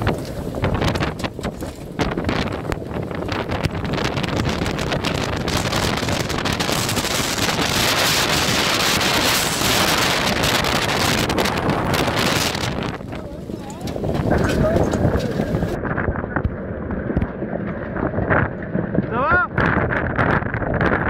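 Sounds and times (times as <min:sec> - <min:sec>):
waves rushing past hull: 0:00.0 - 0:20.3
wind buffeting the microphone: 0:00.0 - 0:21.0.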